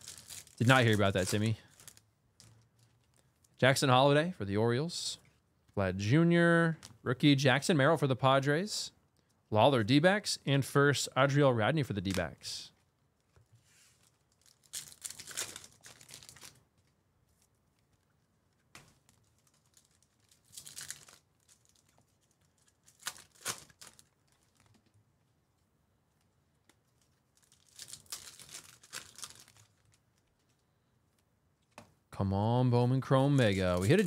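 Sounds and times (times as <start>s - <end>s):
plastic wrapper tearing and crinkling: 0.0s - 3.3s, 14.0s - 16.9s, 18.8s - 24.9s, 26.6s - 30.6s, 33.4s - 34.0s.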